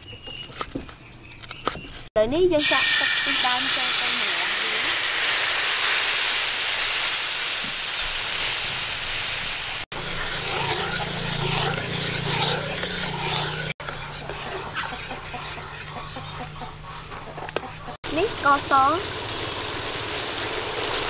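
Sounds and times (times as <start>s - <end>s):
liquid sizzling in hot wok: 2.6s - 16.1s, 18.1s - 21.0s
liquid bubbling: 9.9s - 16.4s
metal ladle stirring: 9.9s - 17.9s.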